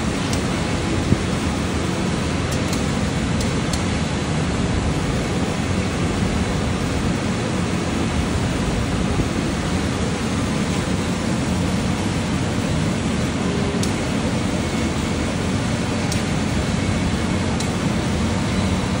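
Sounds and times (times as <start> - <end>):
laser cutter hissing and humming: 0.0 - 19.0.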